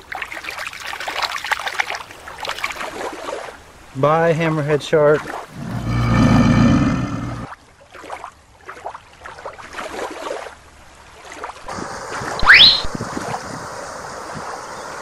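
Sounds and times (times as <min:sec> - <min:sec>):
low rumble with held tone: 0:05.5 - 0:07.5
steady hiss: 0:11.7 - 0:15.0
rising whistle-like tone: 0:12.4 - 0:12.9.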